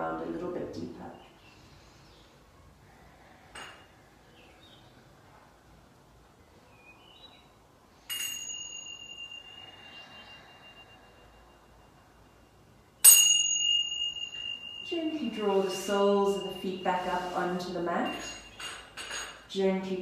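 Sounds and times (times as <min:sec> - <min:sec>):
meditation chime ringing: 0:08.0 - 0:18.8.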